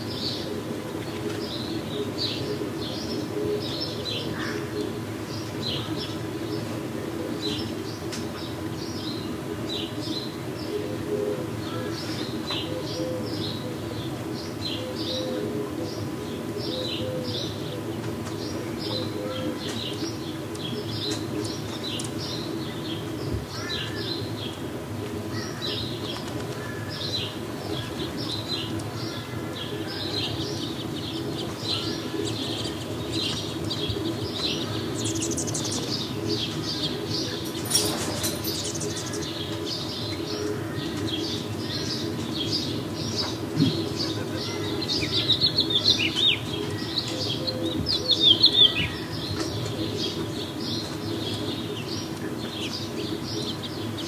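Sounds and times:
small birds chirping: 0:16.4 - 0:54.0.

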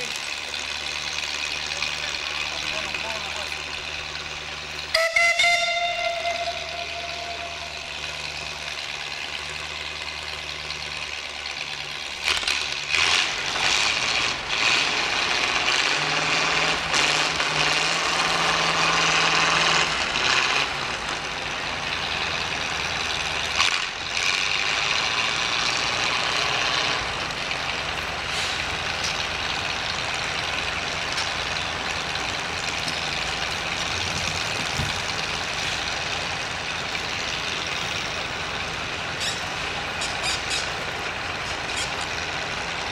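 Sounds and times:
low steady engine drone: 0:00.0 - 0:42.9.

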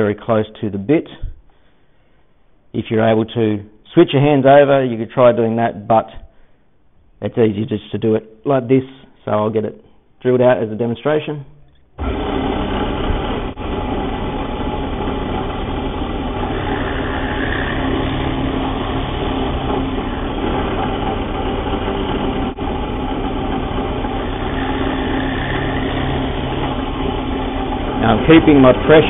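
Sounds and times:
drill bit boring into wood: 0:12.0 - 0:29.0
drill press motor running: 0:12.0 - 0:29.0.

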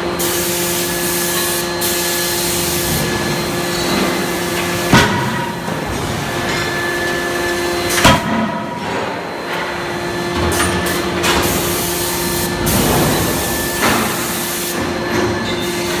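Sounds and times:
machine hum: 0:00.0 - 0:16.0
forging hammer striking steel: 0:04.9 - 0:05.7.

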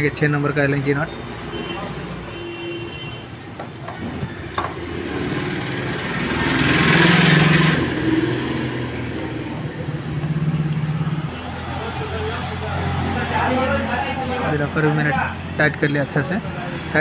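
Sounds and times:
engine running: 0:04.2 - 0:14.4.

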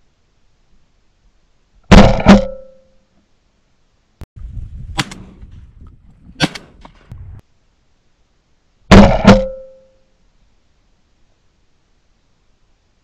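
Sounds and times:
shotgun blasts: 0:01.9 - 0:02.7, 0:04.9 - 0:05.4, 0:06.4 - 0:07.0, 0:08.9 - 0:09.8.

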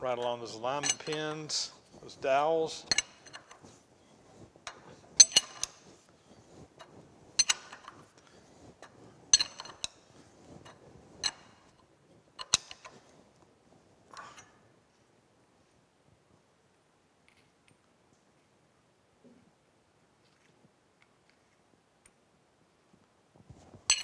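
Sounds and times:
handling noise: 0:00.0 - 0:15.1
wrench clinking against bolts: 0:00.7 - 0:01.6, 0:02.9 - 0:03.6, 0:04.7 - 0:05.8, 0:07.4 - 0:08.0, 0:08.8 - 0:10.0, 0:11.2 - 0:11.7, 0:12.4 - 0:13.0.

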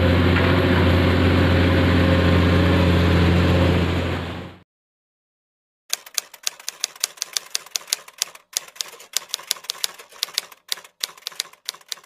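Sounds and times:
typewriter keystroke clacks: 0:05.9 - 0:12.0.

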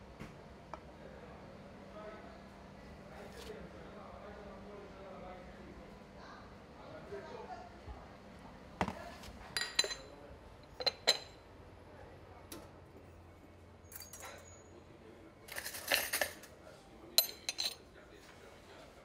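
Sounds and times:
clattering crockery: 0:09.6 - 0:10.1, 0:10.7 - 0:11.4, 0:13.9 - 0:14.6, 0:15.5 - 0:16.5, 0:17.2 - 0:17.8
porcelain cup and saucer clinking: 0:09.6 - 0:10.1, 0:10.7 - 0:11.4, 0:13.8 - 0:14.7, 0:17.2 - 0:17.8.

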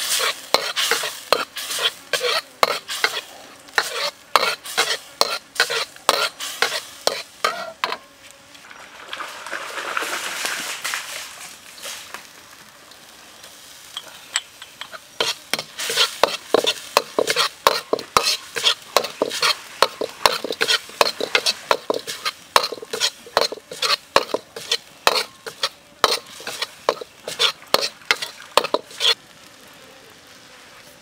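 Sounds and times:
ladle scraping a wok: 0:00.0 - 0:08.0, 0:13.8 - 0:29.2
light sizzle: 0:00.0 - 0:31.0.

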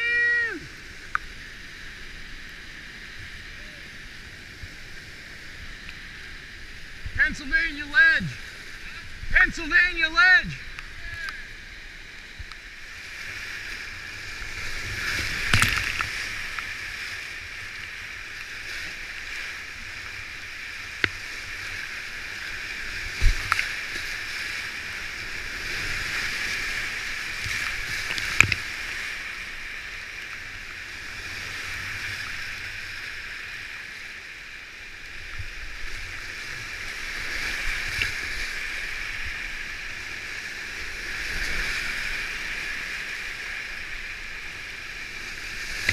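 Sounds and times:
whitewater rushing: 0:00.0 - 0:30.5
knocks and splashes: 0:14.9 - 0:16.6.

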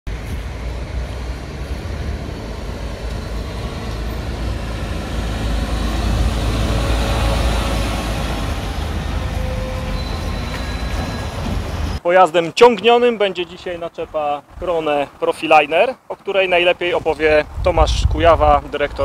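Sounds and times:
truck diesel engine rumbling: 0:00.1 - 0:12.0.

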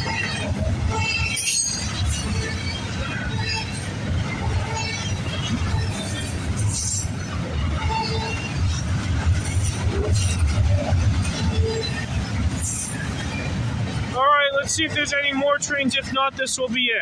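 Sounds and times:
train wheels rumbling on rail: 0:00.0 - 0:17.0.

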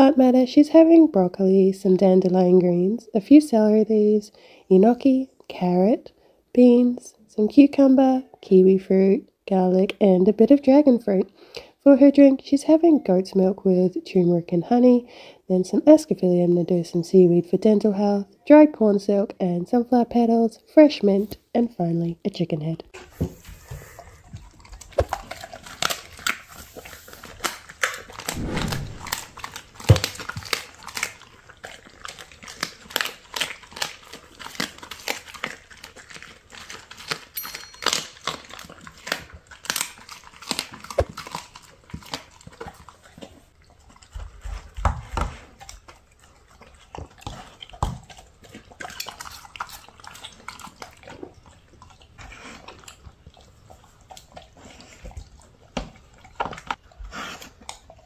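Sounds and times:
dog chewing and licking: 0:23.4 - 0:58.0.

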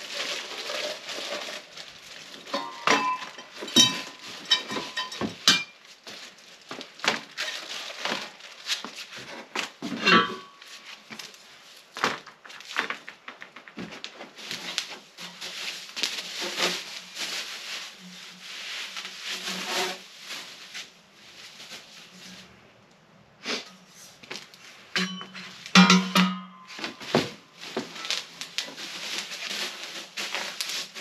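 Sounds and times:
packing rustling: 0:00.0 - 0:09.8, 0:10.6 - 0:22.5, 0:26.5 - 0:31.0
metal parts clinking: 0:02.5 - 0:05.8.

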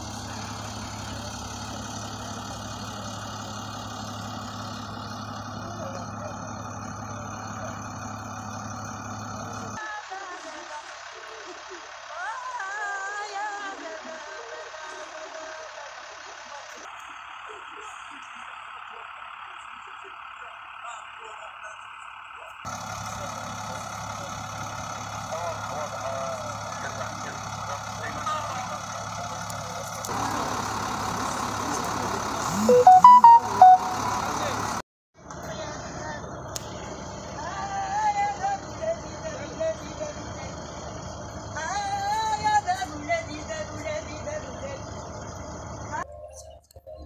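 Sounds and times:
vehicle engine idling: 0:00.0 - 0:46.6
faint short chirps: 0:32.5 - 0:34.2
outdoor background noise: 0:34.0 - 0:47.0.

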